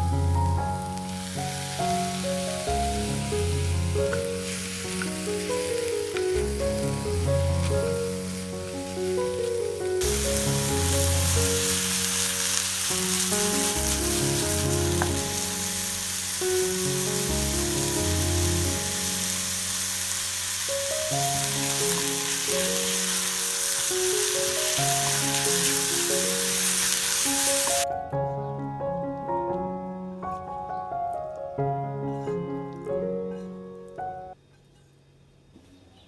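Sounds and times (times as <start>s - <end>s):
background music: 0.0s - 34.4s
mushrooms sizzling in a pan: 0.1s - 27.8s.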